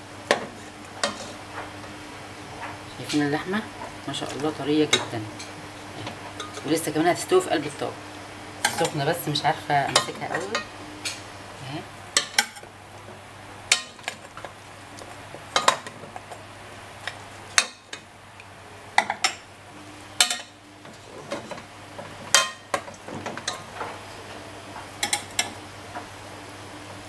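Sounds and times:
metal spoon clinking on pots: 0:08.6 - 0:09.0, 0:09.9 - 0:10.7, 0:22.3 - 0:23.6.

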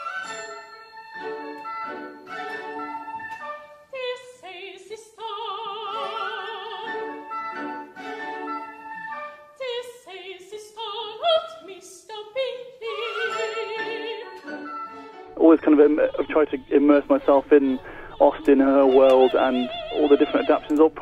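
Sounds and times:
instrumental accompaniment: 0:00.0 - 0:04.0, 0:06.0 - 0:09.6
operatic singing: 0:09.6 - 0:21.0.

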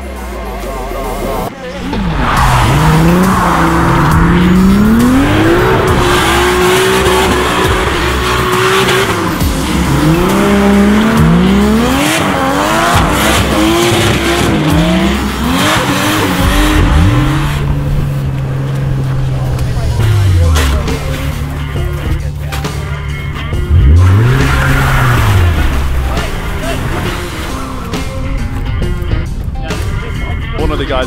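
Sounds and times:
car engine revving hard: 0:01.8 - 0:22.0, 0:23.5 - 0:28.1.

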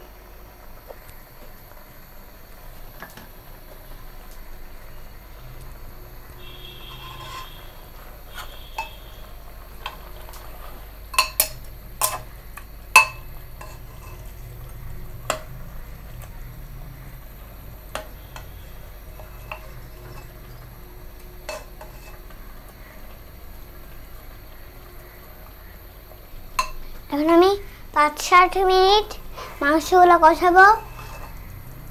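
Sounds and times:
faint steady hum: 0:00.0 - 0:31.9
spoon clinking against metal pot: 0:08.8 - 0:09.0, 0:11.1 - 0:12.3, 0:13.0 - 0:14.2, 0:21.5 - 0:22.2, 0:26.6 - 0:26.8.

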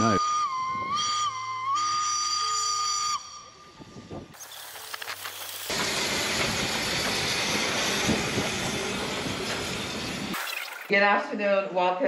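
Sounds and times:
steam locomotive hissing steam: 0:04.4 - 0:10.4.

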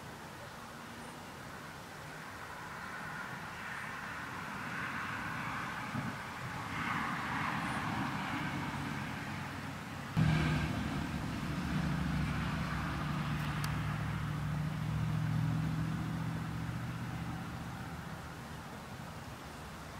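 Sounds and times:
background hiss: 0:00.0 - 0:19.9
low engine hum: 0:07.6 - 0:19.8.

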